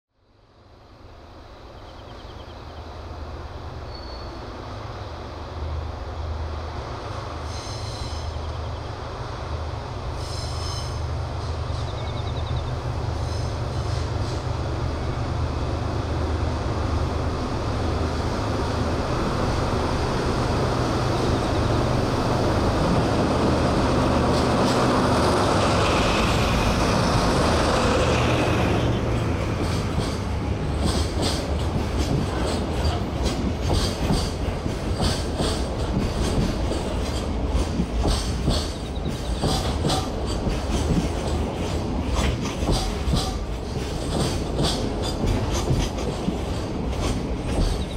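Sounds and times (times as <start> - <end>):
diesel locomotive engine drone: 0.2 - 47.9
wagons clattering over rail joints: 29.0 - 47.9.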